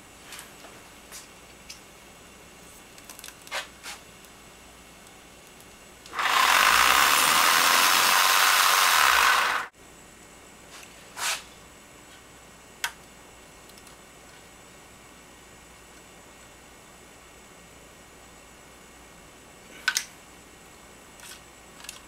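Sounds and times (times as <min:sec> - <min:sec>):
rotary tool hissy whir: 0:06.1 - 0:09.7.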